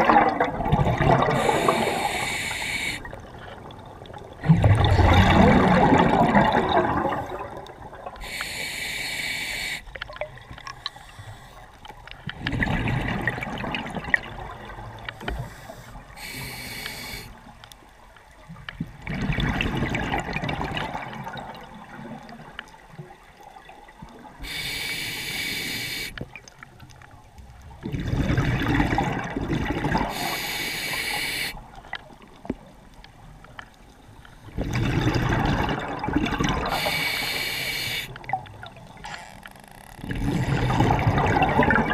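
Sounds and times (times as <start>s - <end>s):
exhaled air bubbling underwater: 0.0s - 41.9s
regulator hissing inhale: 1.4s - 3.1s, 8.2s - 10.0s, 10.8s - 11.8s, 15.2s - 17.4s, 24.4s - 26.2s, 30.1s - 31.6s, 36.7s - 38.1s.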